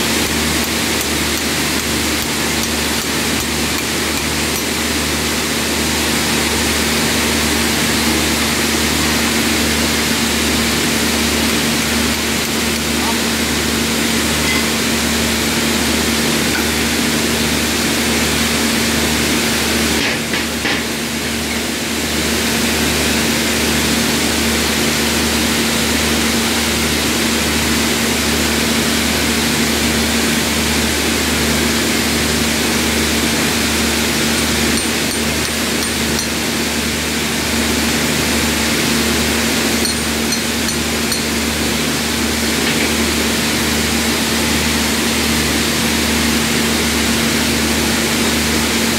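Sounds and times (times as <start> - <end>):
heavy machinery running: 0.0 - 48.9.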